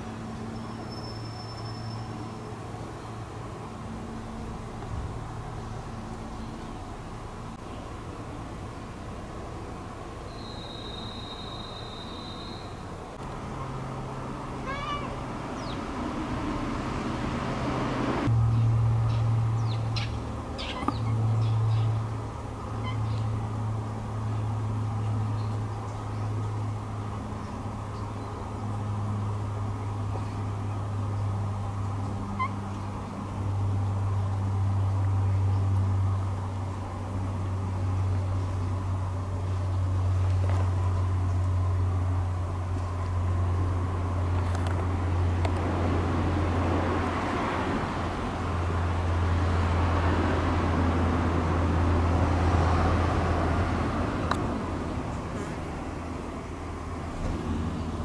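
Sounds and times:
road traffic hum: 0:00.0 - 0:58.0
cat chirping: 0:14.6 - 0:15.2, 0:32.4 - 0:32.6.

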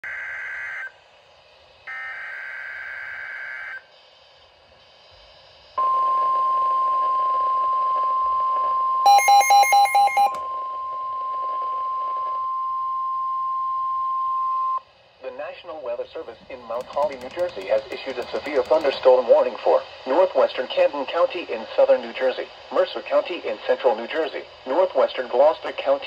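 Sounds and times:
steady warning alarm tone: 0:00.0 - 0:01.0, 0:01.8 - 0:04.1, 0:05.8 - 0:14.8
loud beeps: 0:09.1 - 0:14.8.

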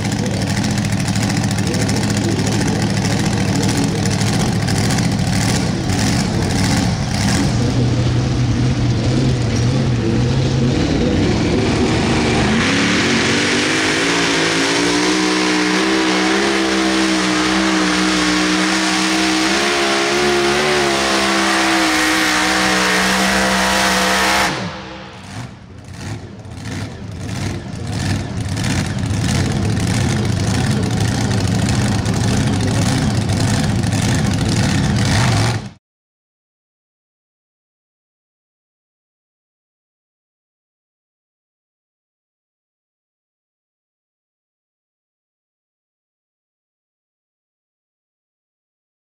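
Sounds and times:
rough crackling engine: 0:00.0 - 0:35.8
tractor engine running flat out: 0:00.0 - 0:35.8.

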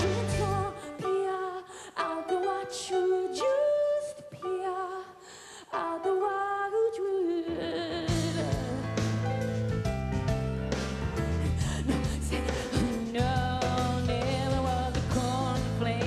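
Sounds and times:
bass guitar: 0:00.0 - 0:00.8, 0:08.1 - 0:16.0
drums: 0:00.0 - 0:01.1, 0:07.8 - 0:16.0
grand piano chords: 0:00.0 - 0:05.1, 0:07.3 - 0:16.0
woman singing with vibrato: 0:00.0 - 0:09.0, 0:11.6 - 0:16.0.

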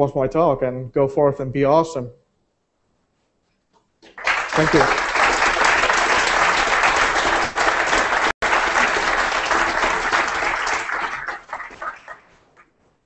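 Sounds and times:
audience applauding: 0:04.0 - 0:12.7.

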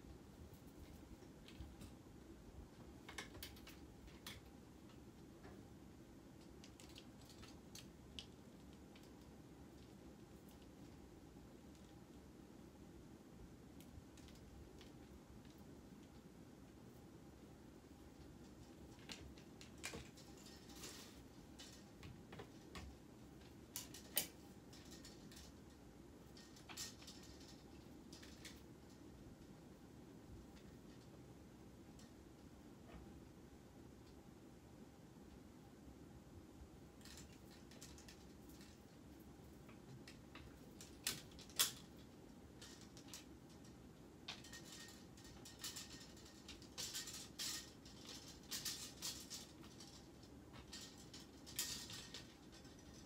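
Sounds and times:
clothes hangers clinking on rod: 0:42.6 - 0:53.0.

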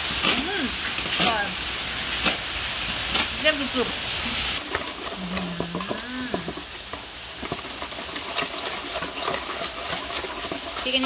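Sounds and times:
person humming: 0:00.3 - 0:00.8, 0:05.1 - 0:06.6
metal spoon stirring in steel bowl: 0:04.6 - 0:11.0.

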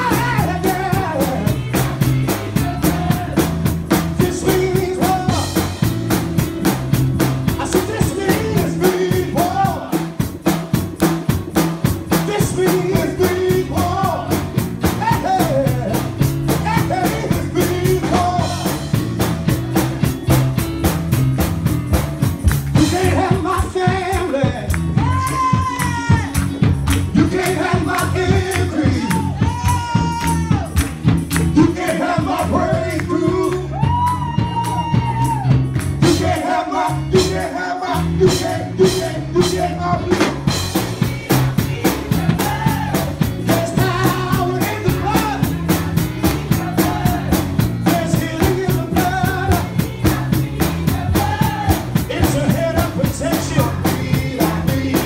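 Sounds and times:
singing voices: 0:00.0 - 0:05.9, 0:07.5 - 0:10.4, 0:12.1 - 0:19.0, 0:22.7 - 0:55.0
tambourine: 0:00.0 - 0:39.8
upbeat gospel music: 0:00.0 - 0:55.0.

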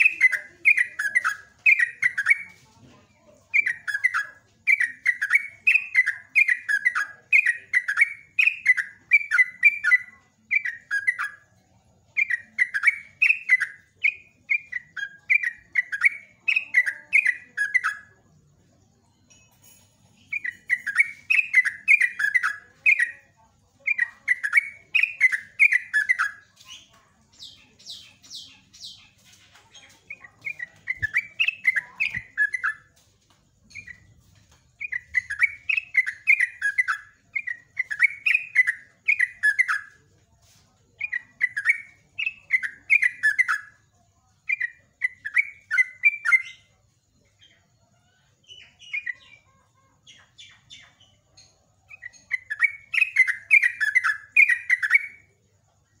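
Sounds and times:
bird singing bubbly phrases: 0:00.0 - 0:02.5, 0:30.0 - 0:32.9
high thin bird chirps: 0:00.0 - 0:56.0.

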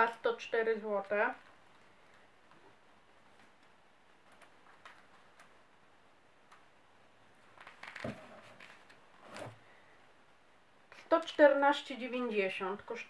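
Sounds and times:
rustling: 0:07.4 - 0:10.0.

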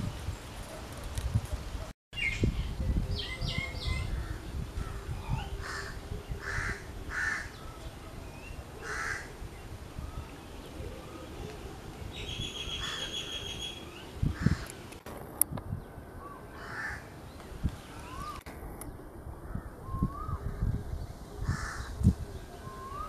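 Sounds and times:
crow cawing: 0:05.6 - 0:07.5, 0:08.8 - 0:09.3, 0:16.6 - 0:17.1.

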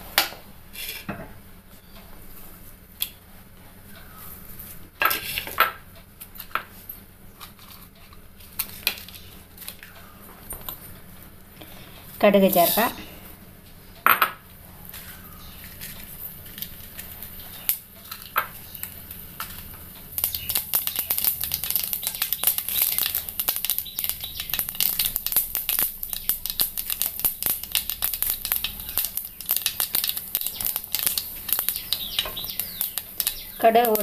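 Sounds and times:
mustard seeds popping in oil: 0:15.6 - 0:34.0.

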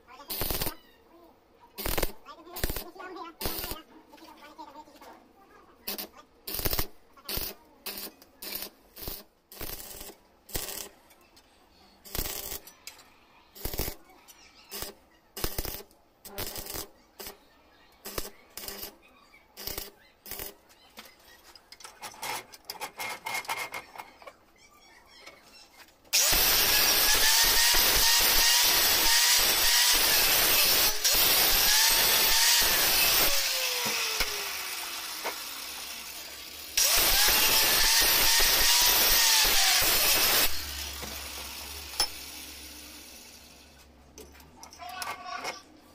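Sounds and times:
arc welder crackling: 0:00.1 - 0:00.8, 0:01.8 - 0:03.9, 0:05.8 - 0:11.1, 0:12.0 - 0:14.1, 0:14.7 - 0:20.8, 0:26.1 - 0:43.8
angle grinder cutting steel: 0:26.2 - 0:43.4.

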